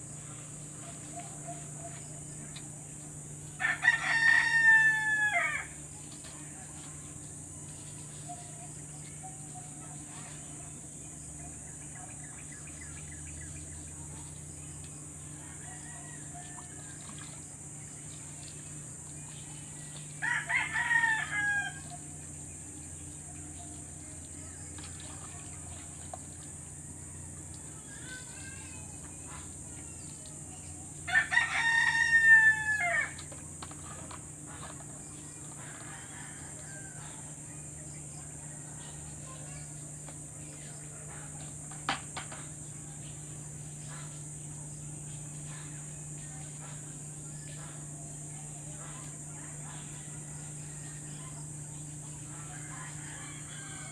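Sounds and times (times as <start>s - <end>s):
faint steady hum: 0.0s - 53.9s
rooster crowing: 3.6s - 5.8s, 15.4s - 17.2s, 20.2s - 22.0s, 31.1s - 33.2s, 35.6s - 37.4s, 52.3s - 53.9s.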